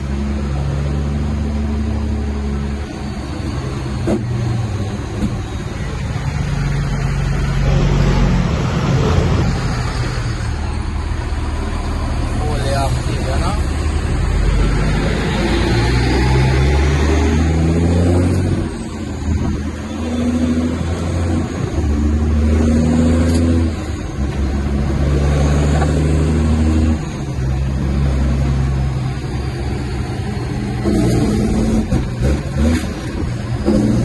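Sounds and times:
truck engine shifting gears: 0.0s - 34.0s.

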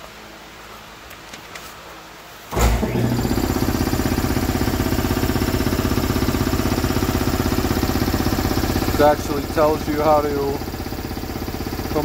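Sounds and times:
engine running with rapid pulsing: 2.5s - 12.0s.

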